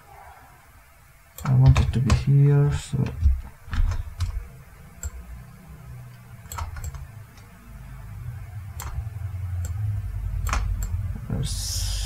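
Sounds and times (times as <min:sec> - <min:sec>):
low hum: 0:00.0 - 0:12.0
computer mouse clicks: 0:01.4 - 0:02.2, 0:06.1 - 0:07.5, 0:08.8 - 0:09.0, 0:10.4 - 0:11.0.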